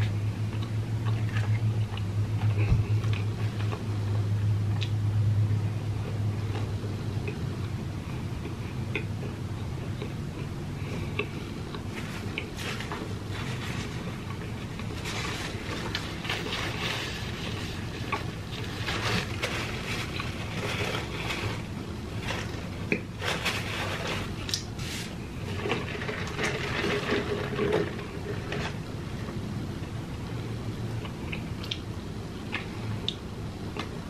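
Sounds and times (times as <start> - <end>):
low steady hum: 0.0 - 34.0
person chewing biscuit: 6.0 - 23.3.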